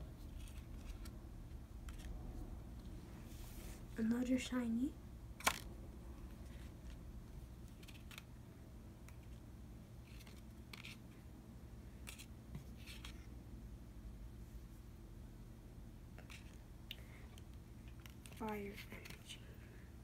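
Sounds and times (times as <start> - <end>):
cards swishing and tapping: 0.2 - 1.2, 10.0 - 11.2, 12.0 - 13.3, 16.2 - 19.4.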